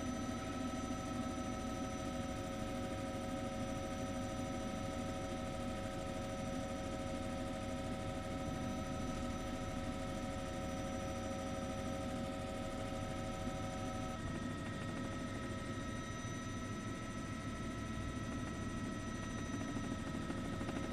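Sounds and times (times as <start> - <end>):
helicopter running: 11.3 - 16.0, 16.6 - 20.9.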